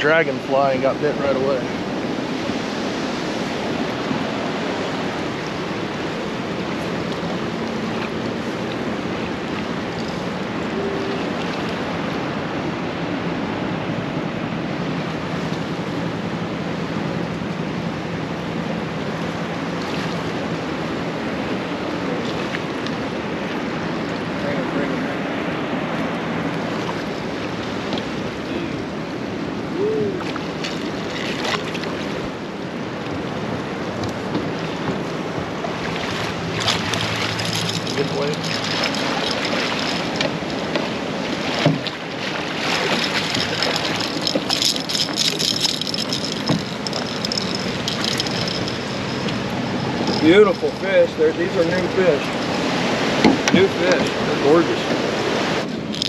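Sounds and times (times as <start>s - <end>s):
river water rushing: 0.0s - 56.0s
wind on microphone: 1.1s - 56.0s.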